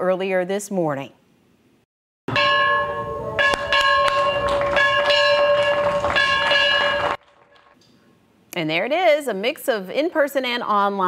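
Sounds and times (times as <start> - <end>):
hand bell ringing: 2.4 - 7.2.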